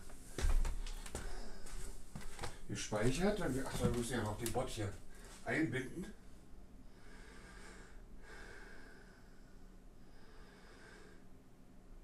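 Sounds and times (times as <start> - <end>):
man breathing through the nose: 0.8 - 2.6, 6.9 - 11.4.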